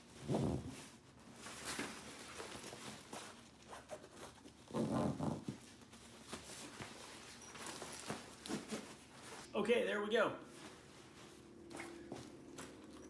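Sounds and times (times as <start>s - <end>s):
backpack fabric rustling: 0.0s - 9.5s.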